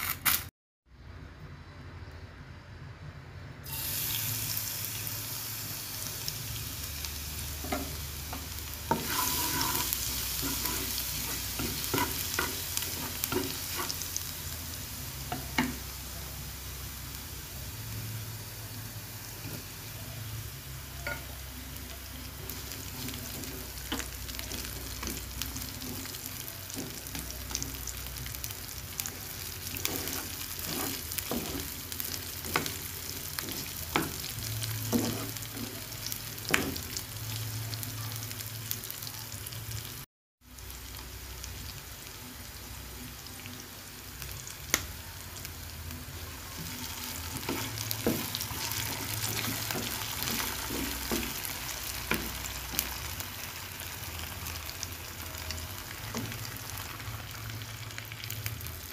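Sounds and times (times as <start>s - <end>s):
oil sizzling in a frying pan: 3.6s - 58.9s
spatula scraping a pan: 8.9s - 14.0s, 29.7s - 34.2s, 34.9s - 35.9s.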